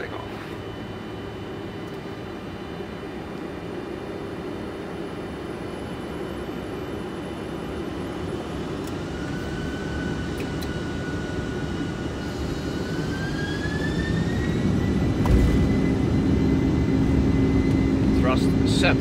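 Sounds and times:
jet engines spooling up: 0.0 - 19.0
thump: 15.2 - 15.6.

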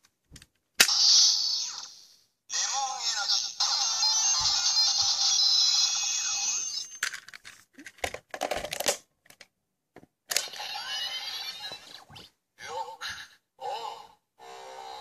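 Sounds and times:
toy belt electronic sound effect: 0.8 - 7.1, 10.4 - 12.9
toy belt voice call: 2.5 - 7.0, 10.4 - 15.0.

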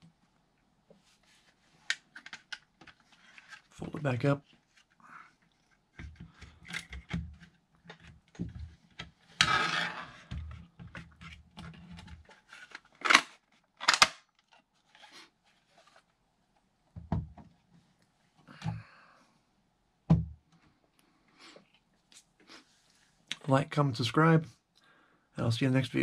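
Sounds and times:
plastic parts clicking and rubbing: 1.8 - 16.1
plastic scraping slide: 9.2 - 14.0
plastic snapping shut: 13.0 - 14.2.

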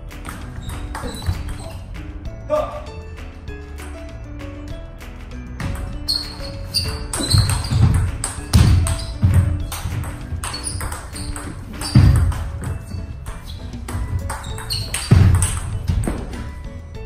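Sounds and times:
table tennis ball clicking: 0.2 - 1.8, 5.6 - 16.4.

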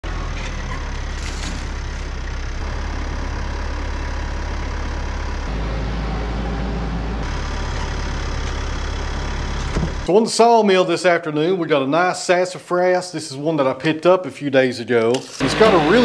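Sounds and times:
tractor engine running: 0.0 - 10.1, 15.4 - 16.0.

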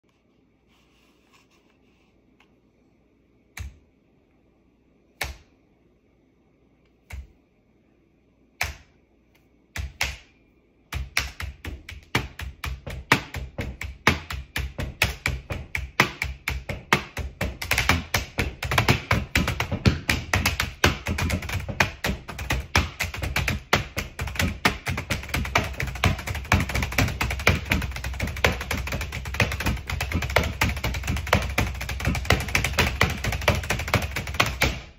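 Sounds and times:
laptop keyboard tapping: 10.9 - 34.9.

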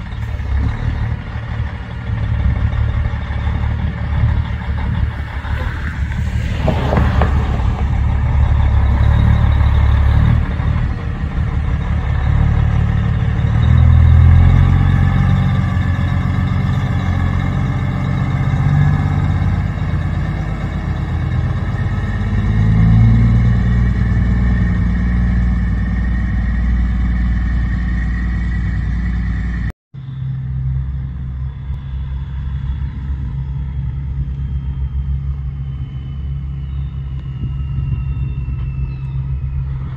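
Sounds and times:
truck diesel engine shifting gears: 0.0 - 29.7
truck engine rumble: 0.0 - 39.9.

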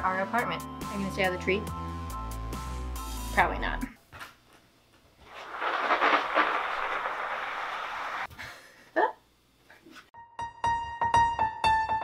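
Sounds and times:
steady rushing rustling noise: 5.2 - 8.3
lively piano music: 10.2 - 12.0.

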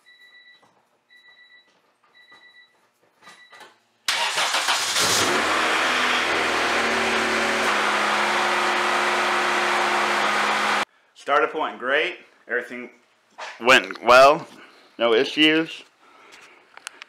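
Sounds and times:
car engine starting and idling: 4.1 - 10.9.

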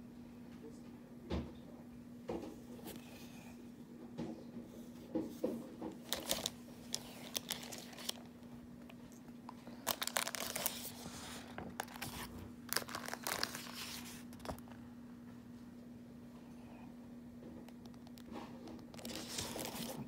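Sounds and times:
faint low hum: 0.0 - 20.0
paper rustling and crinkling: 5.3 - 8.4, 9.6 - 14.7, 18.2 - 20.0.

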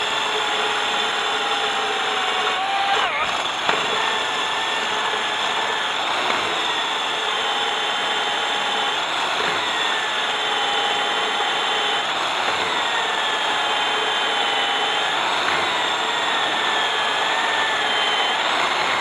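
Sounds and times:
core drill grinding into stone: 0.0 - 19.0.

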